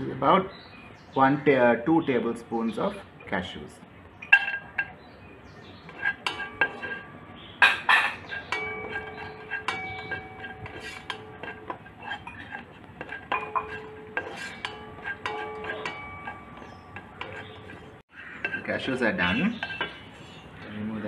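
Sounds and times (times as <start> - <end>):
metal pot ringing: 4.2 - 5.0, 5.8 - 20.1
spatula knocking and scraping pot: 4.2 - 5.0, 5.8 - 20.4.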